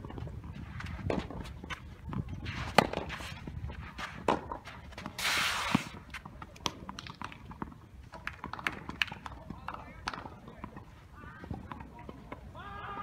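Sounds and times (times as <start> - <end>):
shoes sliding on artificial grass: 2.4 - 6.2
racket hitting tennis ball: 2.5 - 3.3.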